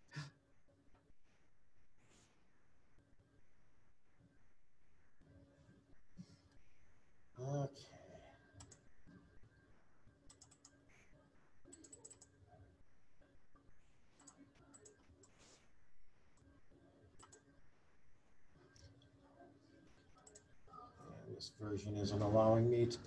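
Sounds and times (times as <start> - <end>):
computer keyboard clicks: 8.6 - 8.8, 10.3 - 10.8, 11.7 - 12.3.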